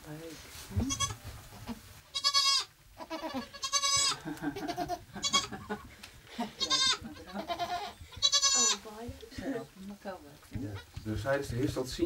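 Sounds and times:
goats bleating: 0.8s - 5.8s, 6.4s - 8.9s
soft low goat calls: 0.8s - 5.8s, 6.4s - 8.9s.

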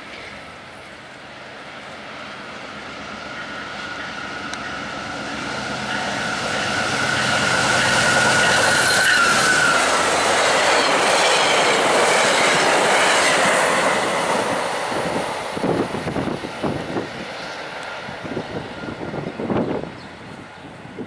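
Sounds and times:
train passing with wheel clatter: 0.0s - 21.0s
wind buffeting microphone: 5.4s - 21.0s.

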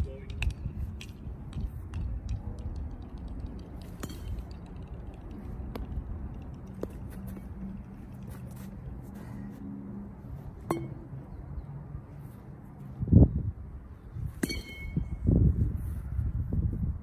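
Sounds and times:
metal bat hitting ball: 3.8s - 4.8s, 10.6s - 11.1s, 14.4s - 15.2s.

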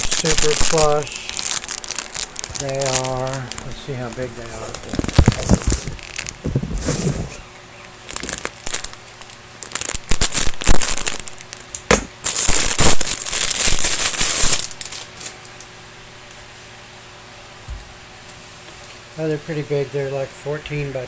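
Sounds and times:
fabric brushing microphone crackles: 4.4s - 7.5s.

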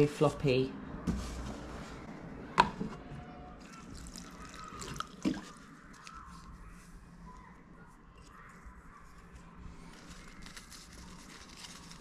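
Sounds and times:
water trickling and dripping: 3.6s - 6.5s.

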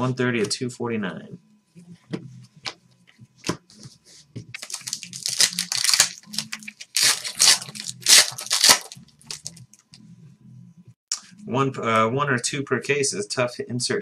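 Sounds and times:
foil wrapper tearing and crinkling: 4.6s - 9.6s.

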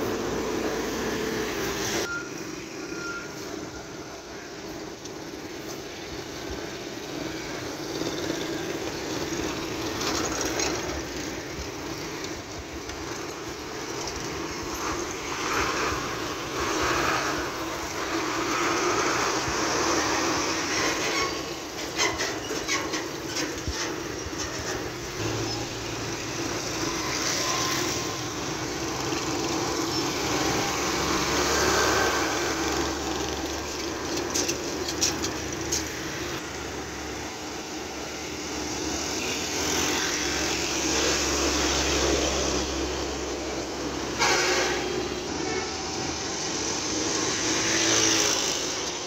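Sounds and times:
motorbikes: 0.0s - 49.0s
rattling clatter: 32.5s - 36.4s.

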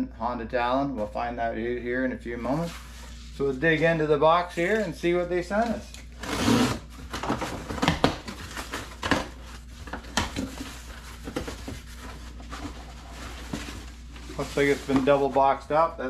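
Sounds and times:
cardboard rustling: 5.7s - 15.8s.

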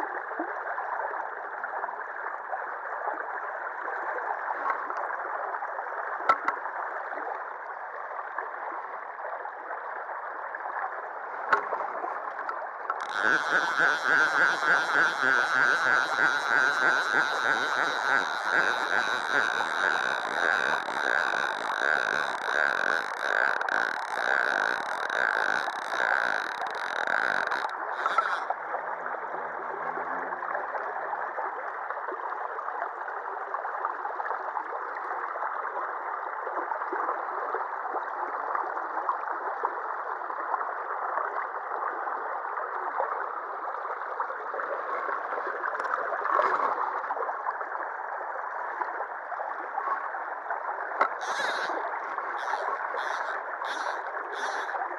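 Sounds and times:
river water rushing: 13.0s - 28.5s.

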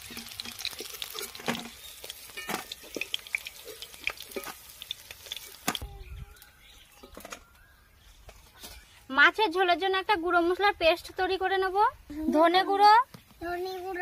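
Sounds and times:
metal spatula scraping a wok: 0.0s - 4.6s
hot oil crackling: 0.0s - 6.9s.

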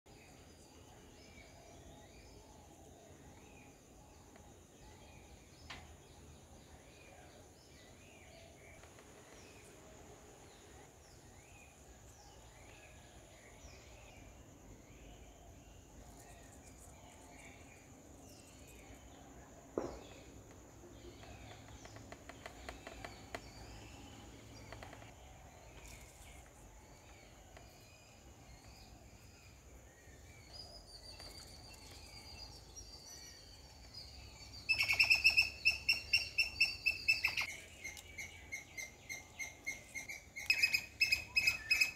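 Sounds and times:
small birds chirping faintly: 0.1s - 41.9s
rapid high sharp bird chirps: 34.7s - 37.5s.

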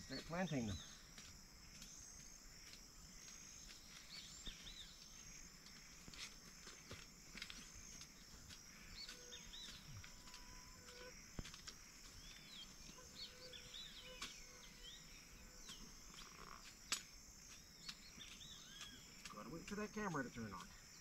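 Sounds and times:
high-pitched insect drone: 0.0s - 21.0s
small birds chirping: 0.0s - 21.0s.

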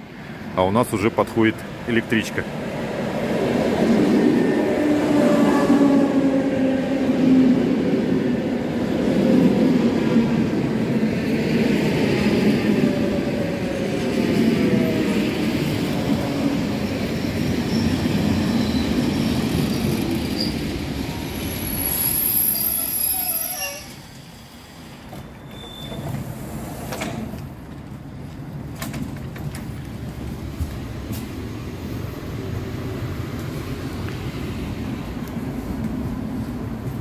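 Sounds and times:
electric train rumbling: 0.0s - 37.0s
train brake squeal: 17.2s - 26.4s.

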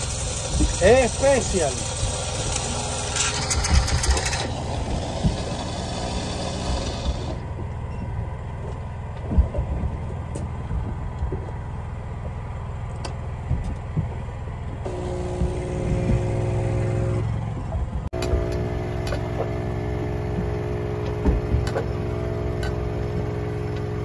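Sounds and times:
hiss and clatter: 0.0s - 7.4s
boat engine rumbling: 0.0s - 24.0s.

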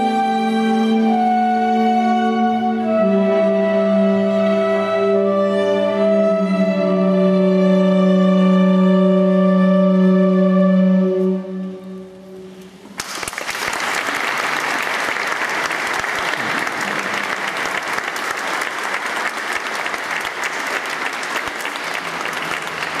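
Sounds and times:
audience applauding: 13.0s - 23.0s.

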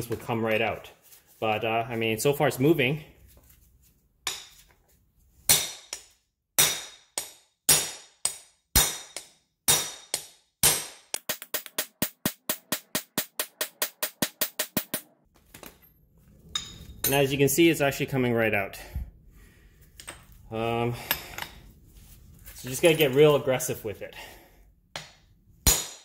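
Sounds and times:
hammer striking steel: 4.3s - 4.6s, 5.5s - 15.1s, 25.0s - 26.0s.

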